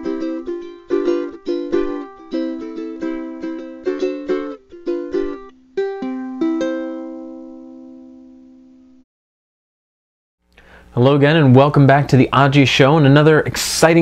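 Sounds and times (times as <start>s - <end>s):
plucked string instrument music: 0.0s - 9.0s.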